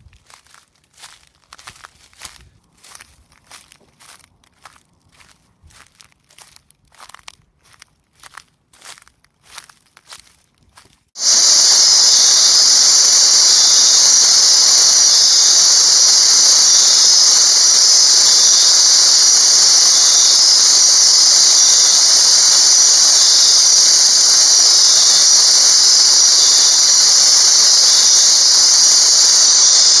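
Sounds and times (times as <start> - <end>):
night insect chorus buzzing: 11.2 - 30.0.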